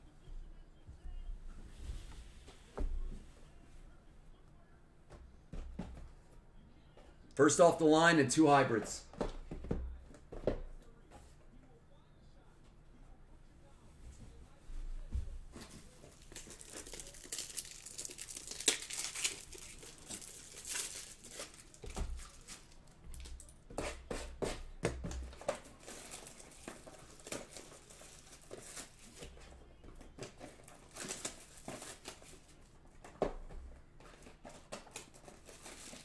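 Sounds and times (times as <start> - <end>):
packaging crinkling and tearing: 15.9 - 23.5, 25.7 - 29.3, 30.2 - 32.5, 34.2 - 36.0.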